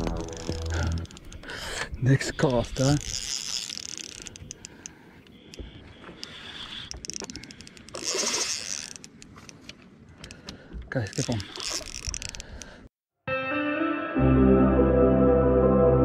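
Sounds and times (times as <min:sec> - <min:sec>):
fishing reel ratchet clicking: 0:00.0 - 0:01.5, 0:02.8 - 0:05.0, 0:06.2 - 0:09.3, 0:11.1 - 0:12.7.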